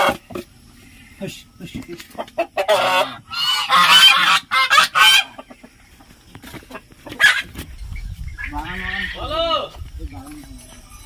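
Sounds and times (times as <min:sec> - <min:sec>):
geese honking: 0:02.1 - 0:05.8, 0:06.7 - 0:07.6, 0:08.4 - 0:09.7.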